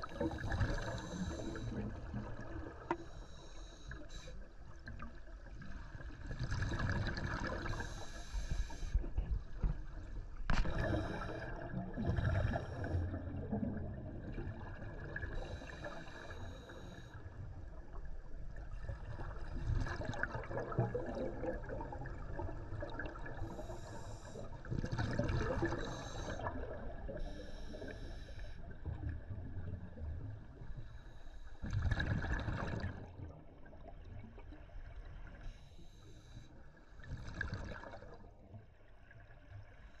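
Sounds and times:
exhaled bubbles gurgling: 0.0 - 35.4, 37.0 - 38.6
regulator inhalation hiss: 3.0 - 4.4, 7.7 - 9.0, 23.6 - 24.4.

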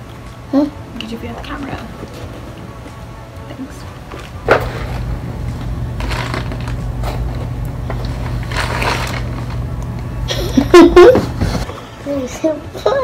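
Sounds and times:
steady low hum: 0.0 - 13.0
plastic packaging crinkling: 5.9 - 9.9.

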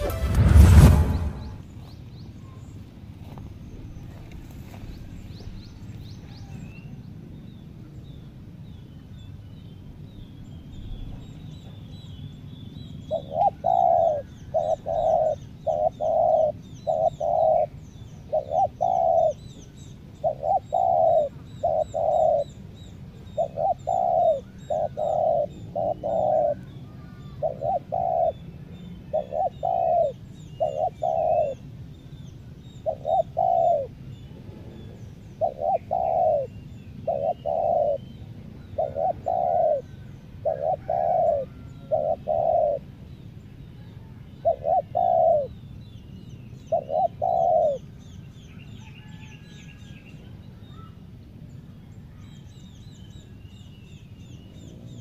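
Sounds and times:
small birds chirping: 1.4 - 55.0
dove cooing: 13.1 - 19.5, 20.2 - 22.6, 23.3 - 31.6, 32.8 - 34.0, 34.6 - 43.0, 44.0 - 45.6, 46.7 - 47.9.

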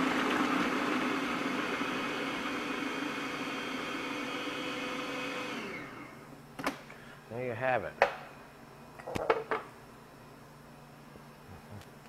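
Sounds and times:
food processor motor whirring: 0.0 - 6.2.

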